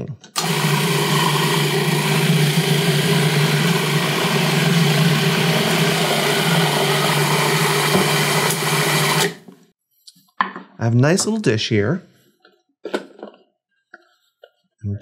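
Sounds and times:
food processor motor running: 0.4 - 9.5.

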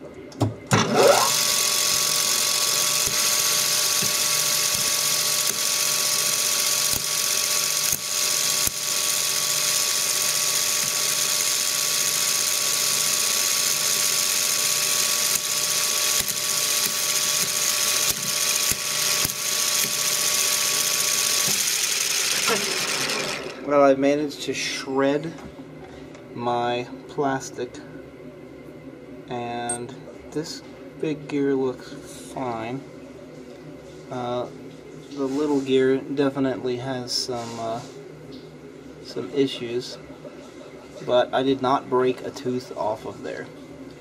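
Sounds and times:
plastic gears grinding with whine: 0.8 - 23.7
lathe motor running: 0.8 - 23.8.

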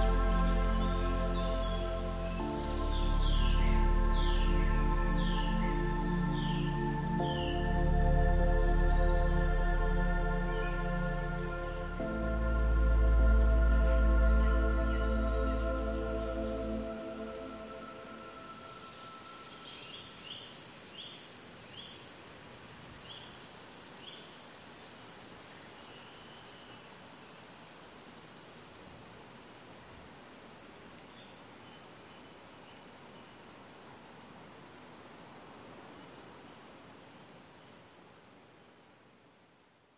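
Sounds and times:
bird chirping: 0.0 - 22.3
crickets chirring: 0.0 - 39.9.

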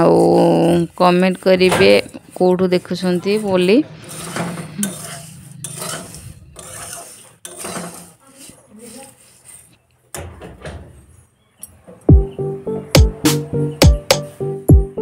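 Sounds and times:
metal spatula scraping a pan: 0.0 - 11.4.

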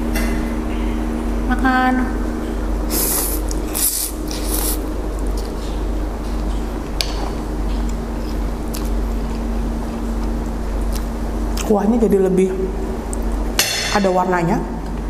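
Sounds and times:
room hum: 0.0 - 15.0
person slurping noodles: 2.9 - 4.8.

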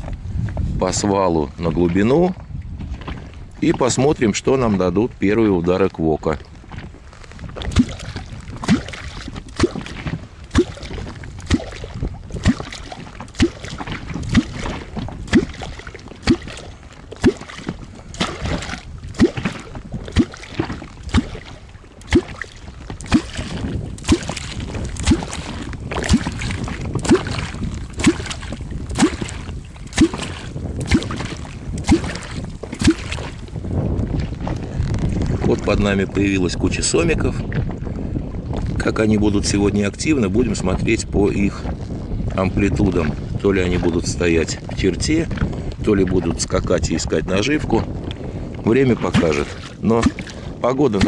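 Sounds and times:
low plop of stick striking water: 7.6 - 33.6, 49.0 - 50.4.

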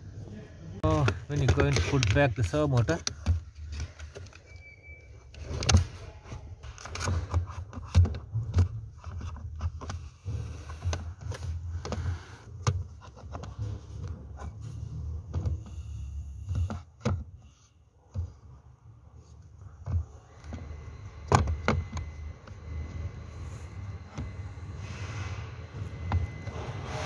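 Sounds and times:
plastic scraping: 0.8 - 4.4
plastic clicks and knocks: 0.9 - 4.4.

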